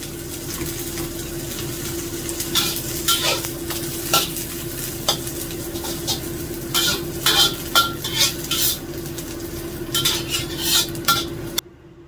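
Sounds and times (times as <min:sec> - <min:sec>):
eggs sizzling: 0:00.0 - 0:11.6
metal spatula scraping a wok: 0:02.4 - 0:09.0, 0:09.8 - 0:11.6.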